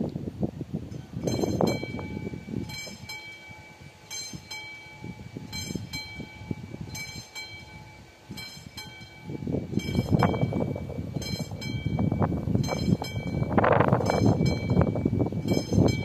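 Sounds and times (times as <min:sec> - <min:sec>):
level crossing warning bell: 0:00.9 - 0:16.0.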